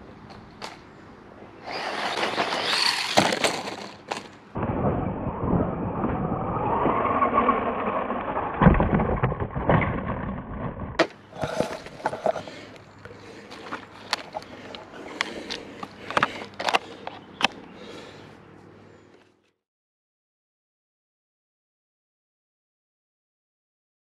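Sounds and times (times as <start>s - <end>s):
rc car motor and tyres on dirt: 1.6s - 18.3s
rc car landing knocks: 2.1s - 4.3s.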